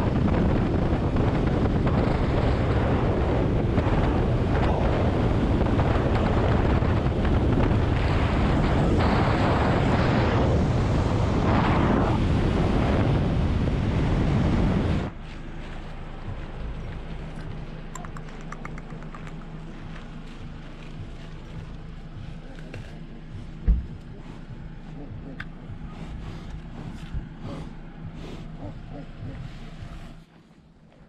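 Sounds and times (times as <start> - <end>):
wind rushing over microphone: 0.0 - 30.3
motorcycle engine: 14.9 - 30.3.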